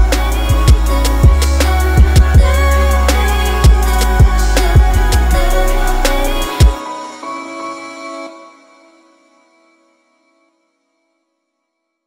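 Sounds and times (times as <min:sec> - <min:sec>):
background music with bass drum: 0:00.0 - 0:06.8.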